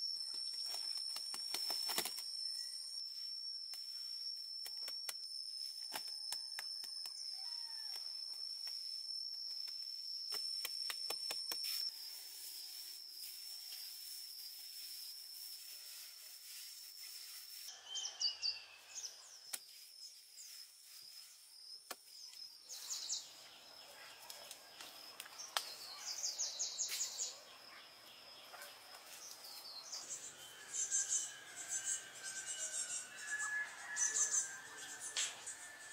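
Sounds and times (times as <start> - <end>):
high-pitched insect buzz: 0.0 - 35.9
birds calling in rapid trills: 25.4 - 35.9.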